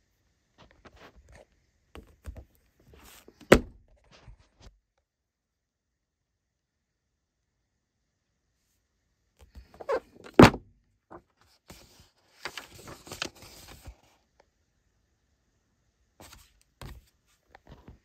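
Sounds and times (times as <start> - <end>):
book thumping on table: 3.3 - 3.8, 9.6 - 10.6
paper rustling pages turned: 11.1 - 14.2, 16.2 - 18.0.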